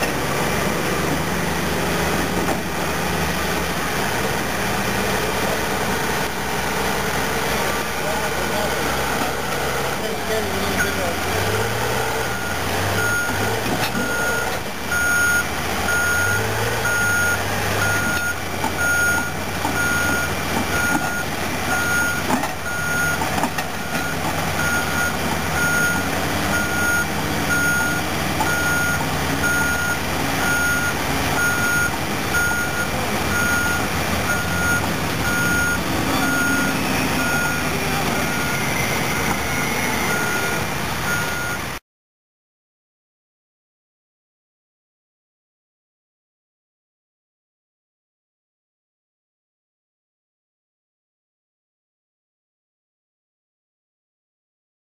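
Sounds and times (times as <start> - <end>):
heavy diesel engine: 0.0 - 41.8
backup alarm beeping: 14.0 - 23.2, 23.8 - 41.6.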